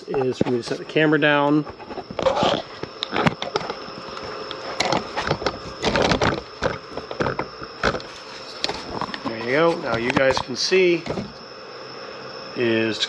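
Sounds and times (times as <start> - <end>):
camera handling knocks and rustles: 4.8 - 9.3.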